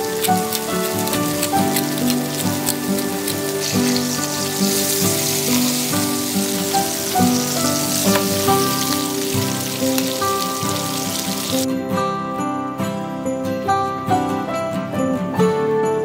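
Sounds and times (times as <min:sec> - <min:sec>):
meat sizzling in a frying pan: 0:00.0 - 0:11.7
background music: 0:00.0 - 0:16.0.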